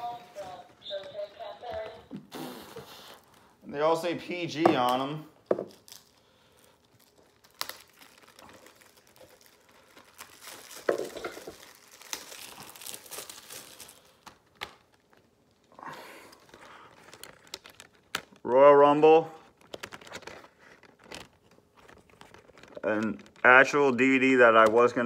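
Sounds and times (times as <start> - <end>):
plastic wrapping crinkling and tearing: 4.8 - 25.0.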